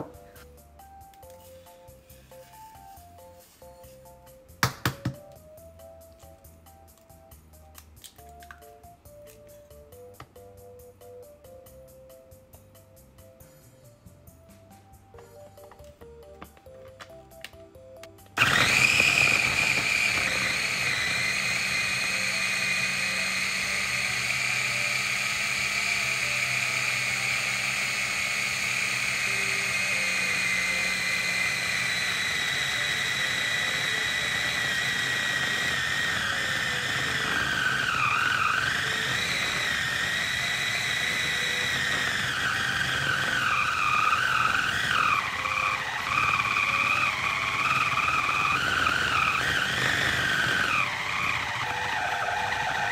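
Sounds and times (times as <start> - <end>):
food chopper motor whine: 0.0 - 0.5, 18.4 - 52.9.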